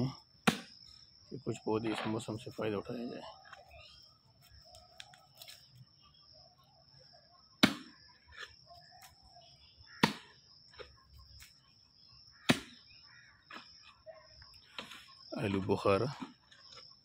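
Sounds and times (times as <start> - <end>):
hoe chopping into soil: 0.4 - 0.8, 7.6 - 8.5, 10.0 - 10.4, 12.4 - 12.8.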